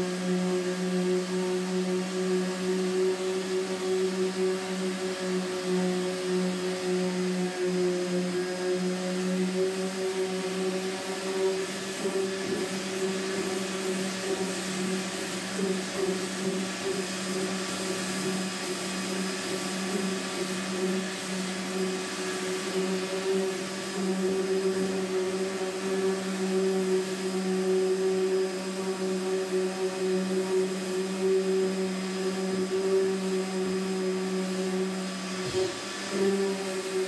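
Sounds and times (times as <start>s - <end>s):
electric power sander running: 0.0s - 37.0s.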